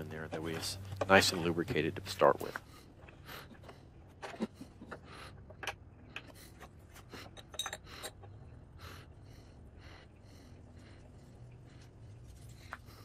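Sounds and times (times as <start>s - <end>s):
metal wrench clinking on plastic: 7.2s - 8.3s.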